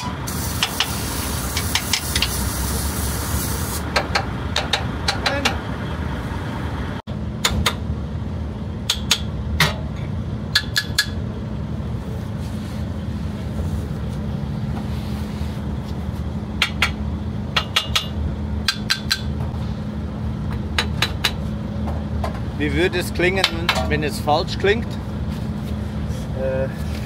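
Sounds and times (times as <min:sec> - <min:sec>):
hammer tapping on steel: 0:03.9 - 0:05.6, 0:08.9 - 0:09.3, 0:10.5 - 0:11.2, 0:17.6 - 0:19.3.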